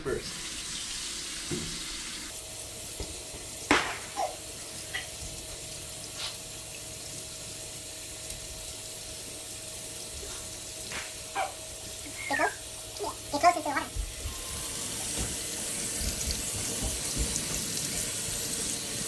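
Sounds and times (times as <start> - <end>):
faucet running into sink: 0.0 - 19.0
knocks against sink: 16.0 - 17.6.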